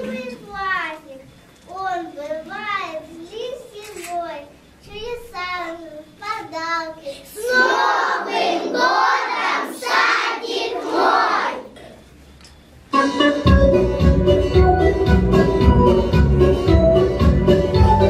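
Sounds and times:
child singing: 0:06.3 - 0:11.8
children singing together: 0:07.1 - 0:11.9.

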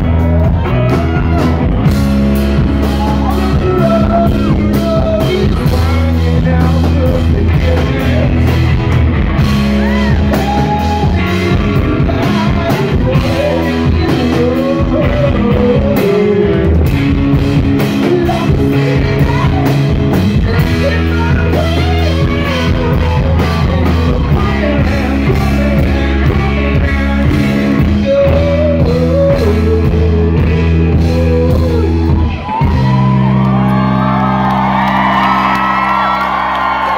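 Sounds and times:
crowd whooping and cheering: 0:00.0 - 0:06.0, 0:08.0 - 0:14.6, 0:30.8 - 0:36.9
rock band playing: 0:00.0 - 0:36.9
person singing lead vocal: 0:02.6 - 0:33.2.

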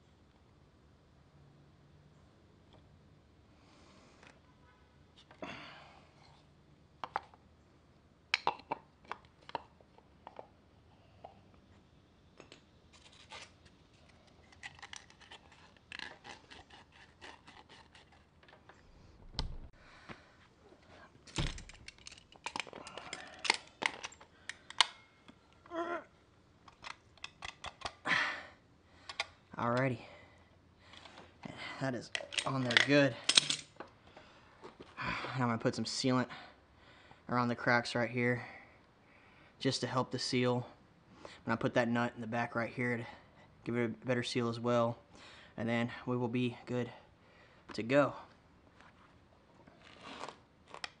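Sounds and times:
plastic and metal clicks and scrapes: 0:12.9 - 0:18.8, 0:21.5 - 0:25.0, 0:26.6 - 0:28.0.

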